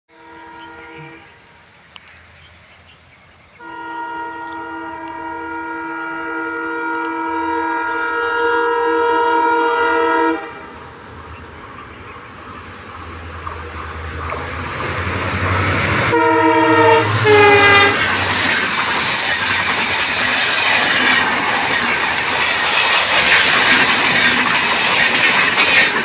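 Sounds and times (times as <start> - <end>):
locomotive horn blasts: 0.1 - 1.4, 3.6 - 10.7, 15.9 - 18.1
train rumbling: 0.1 - 26.0.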